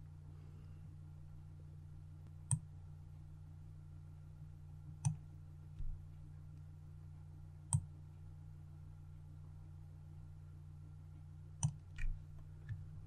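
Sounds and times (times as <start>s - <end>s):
faint low hum: 0.0s - 13.0s
computer mouse clicking: 11.6s - 12.9s.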